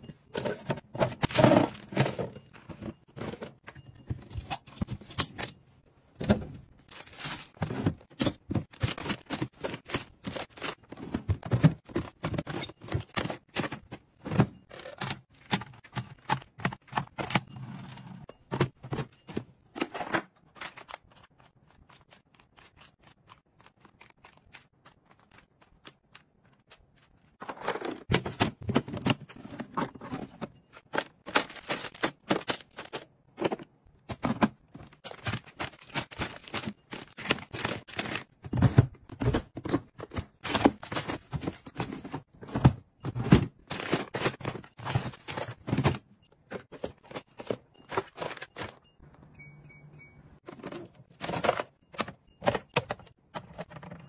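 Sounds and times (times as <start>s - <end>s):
plastic and cardboard rattling: 0.4s - 21.3s, 27.4s - 49.0s, 50.4s - 54.0s.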